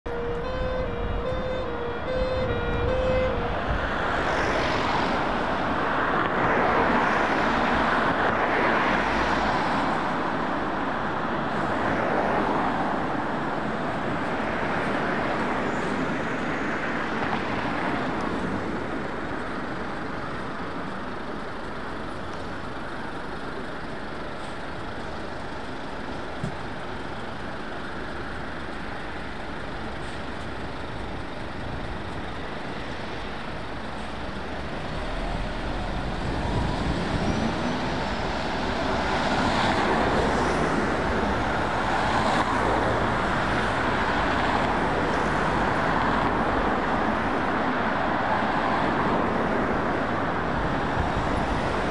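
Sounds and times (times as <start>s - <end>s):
siren: 0.1s - 5.4s
heavy vehicles passing: 0.1s - 51.9s.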